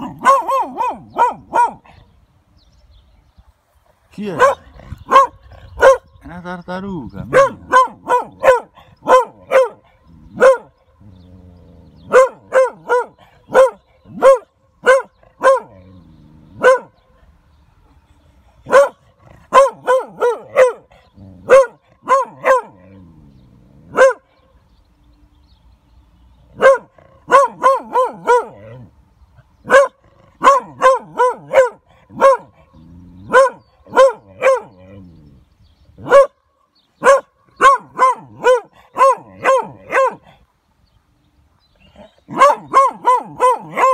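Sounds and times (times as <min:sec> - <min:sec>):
dog barking: 0:00.0 - 0:01.9, 0:04.4 - 0:06.1, 0:07.3 - 0:10.7, 0:12.1 - 0:15.8, 0:16.6 - 0:16.9, 0:18.7 - 0:22.8, 0:23.9 - 0:24.3, 0:26.6 - 0:28.8, 0:29.6 - 0:32.6, 0:33.3 - 0:34.7, 0:36.0 - 0:36.4, 0:37.0 - 0:40.3, 0:42.3 - 0:43.9.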